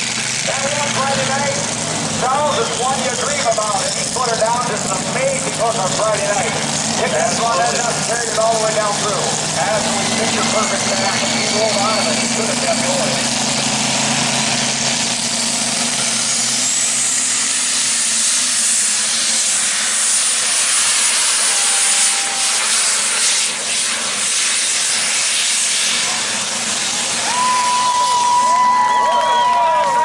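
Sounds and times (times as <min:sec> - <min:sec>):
diesel engine roaring under load: 0:00.0 - 0:30.0
high turbo whistle: 0:18.5 - 0:26.0, 0:27.2 - 0:30.0.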